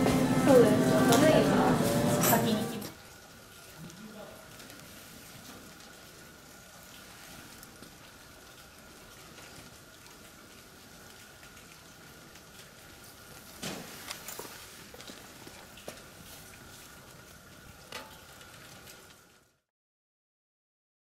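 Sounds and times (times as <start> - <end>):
light rain pattering: 2.9 - 19.7.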